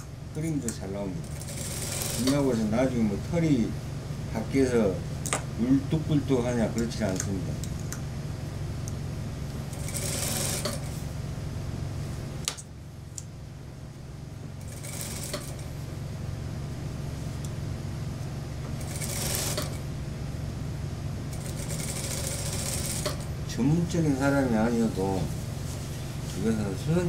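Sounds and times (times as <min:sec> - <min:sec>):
sewing machine running: 0:01.2 - 0:02.5, 0:09.7 - 0:10.9, 0:14.6 - 0:15.7, 0:18.8 - 0:19.8, 0:21.3 - 0:23.3.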